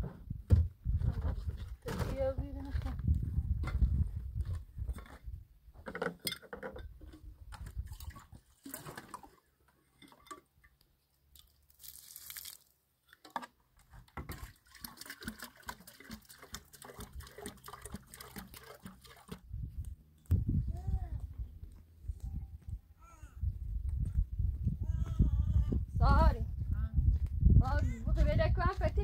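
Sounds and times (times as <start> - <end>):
water splashing onto gravel: 11.4 - 12.8, 14.3 - 19.4
water pouring into kettle: 14.4 - 19.4.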